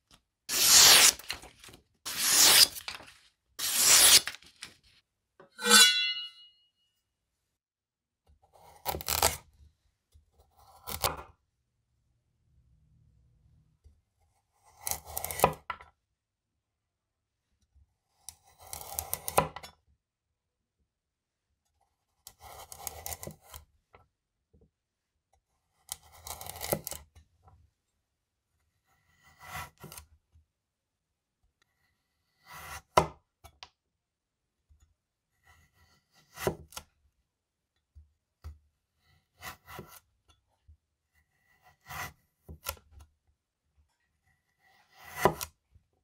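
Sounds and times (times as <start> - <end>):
knife slicing carrot on wooden board: 2.1 - 2.9, 8.4 - 9.5, 10.5 - 11.3, 14.6 - 15.8, 18.1 - 19.7, 22.2 - 23.7, 25.7 - 27.1, 28.8 - 30.1, 32.2 - 33.3, 35.4 - 36.9, 38.4 - 40.1, 41.2 - 43.1, 44.6 - 45.6.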